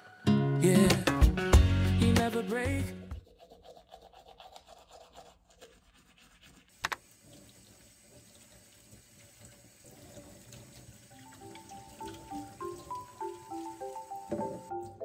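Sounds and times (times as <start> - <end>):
tap water running into sink: 6.7 - 15.0.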